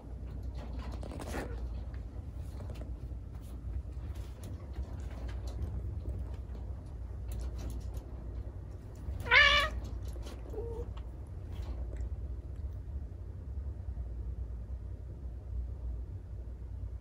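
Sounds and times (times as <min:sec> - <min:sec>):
faint short cat cry: 0:09.2 - 0:09.8
cat yowling: 0:09.2 - 0:10.9.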